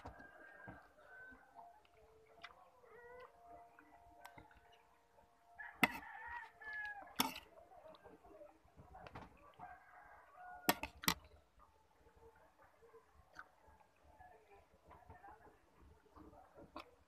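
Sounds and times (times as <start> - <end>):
rooster crowing: 5.6 - 7.2.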